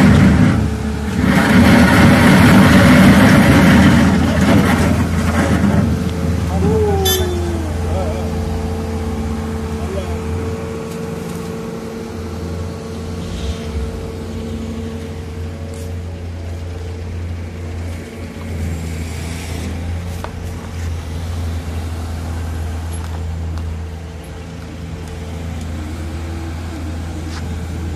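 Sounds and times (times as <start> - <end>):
diesel engine running: 0.0 - 27.9
broad rushing noise: 12.2 - 17.3.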